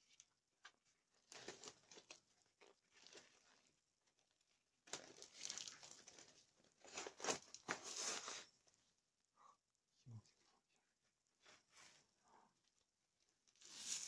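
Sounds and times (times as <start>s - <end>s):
crinkling and tearing plastic: 0.1s - 8.7s.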